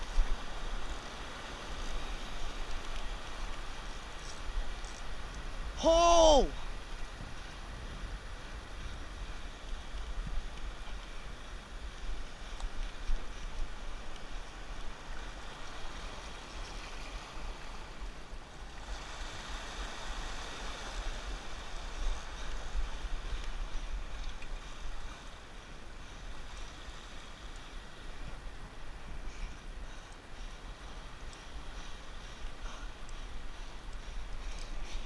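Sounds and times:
wind rumbling on microphone: 0.0s - 35.0s
waves washing over rocks: 11.7s - 25.0s.

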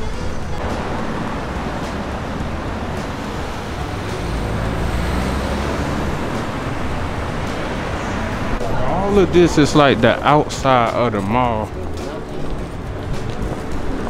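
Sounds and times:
cars driving past: 0.0s - 14.0s.

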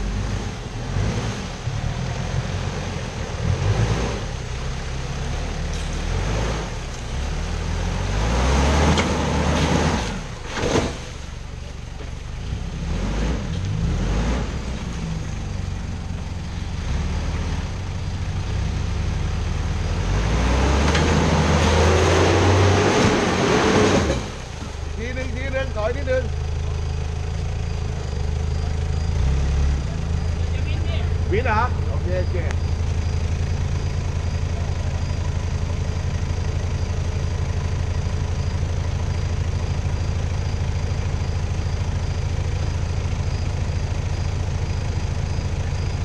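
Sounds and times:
pickup engine revving: 0.0s - 11.7s, 12.3s - 46.0s
tyres churning mud and water: 19.5s - 27.0s.

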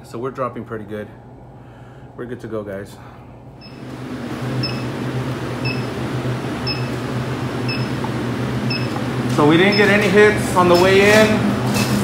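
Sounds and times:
freezer fans humming: 0.0s - 12.0s
leak detector beeping: 3.6s - 11.2s.

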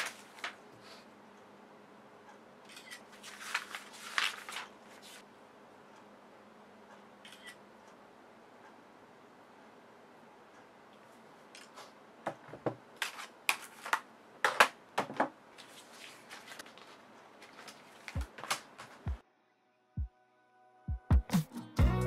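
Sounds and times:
rustling and handling noise: 0.0s - 1.1s, 2.9s - 5.3s, 11.0s - 19.2s.

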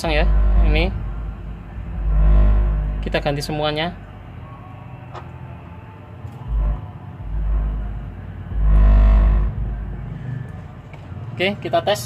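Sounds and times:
amplifier speaker hum: 0.0s - 4.4s, 6.4s - 10.9s.

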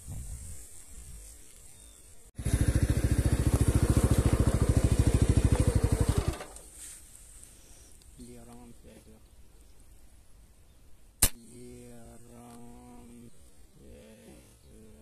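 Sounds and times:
small engine puttering: 2.4s - 6.7s.

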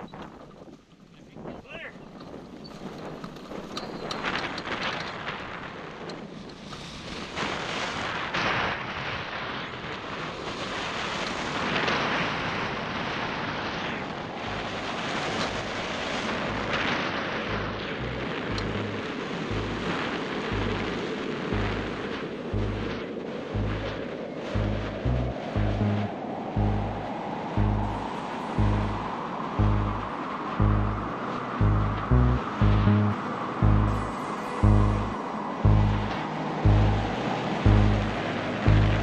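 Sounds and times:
wind rushing over microphone: 0.0s - 39.0s
repeating bass line music: 14.5s - 14.8s, 15.5s - 15.8s, 16.5s - 16.9s, 17.5s - 22.0s, 22.6s - 23.0s, 23.6s - 24.0s, 24.6s - 39.0s.

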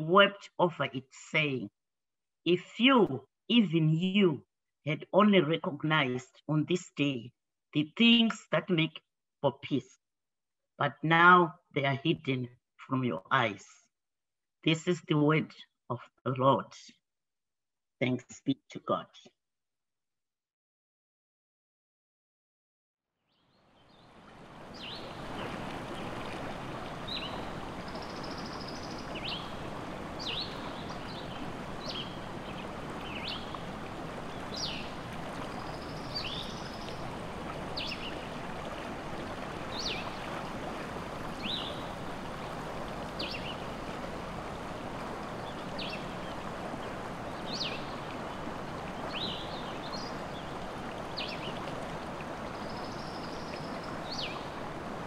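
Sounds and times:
small birds chirping: 26.8s - 37.1s, 37.8s - 38.3s, 39.7s - 40.2s, 41.3s - 42.0s, 43.2s - 43.9s, 45.4s - 46.4s, 47.3s - 48.1s, 49.1s - 51.6s.

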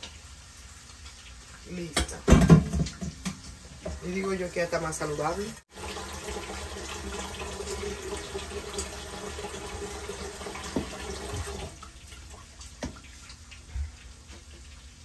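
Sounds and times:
tap running into metal sink: 10.5s - 11.6s.

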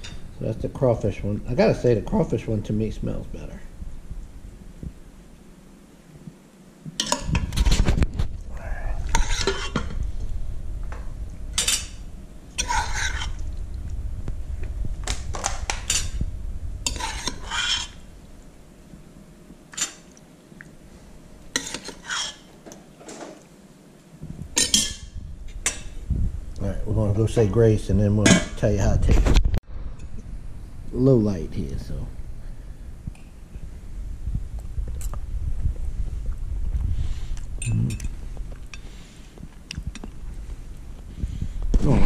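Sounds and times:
metal spoon scraping pots: 7.0s - 7.5s, 9.0s - 10.0s, 11.6s - 12.0s, 12.6s - 13.4s, 15.7s - 16.2s, 16.9s - 18.0s, 21.5s - 22.5s, 24.6s - 26.0s.

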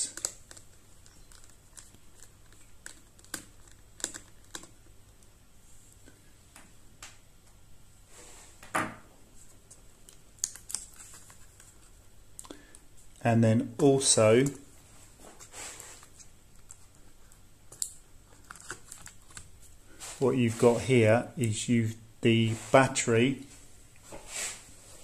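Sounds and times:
brief rub: 15.4s - 16.2s, 24.1s - 24.7s.

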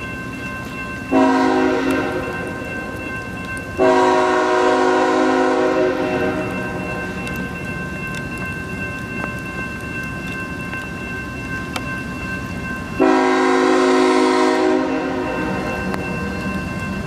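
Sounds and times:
crossing bell ringing: 0.0s - 17.0s
train air horn blasts: 1.1s - 2.3s, 3.8s - 6.6s, 13.0s - 15.7s.

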